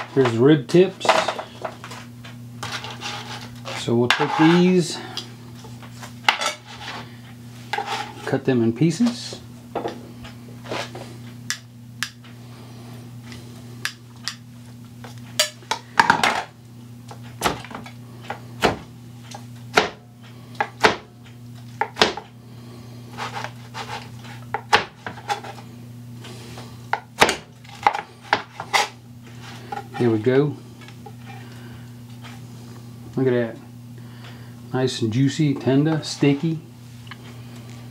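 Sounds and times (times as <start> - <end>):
steady low hum: 0.0 - 37.9
knife chopping on plastic board: 19.7 - 20.0, 20.6 - 21.1, 21.8 - 22.3, 24.5 - 25.2, 27.0 - 28.8.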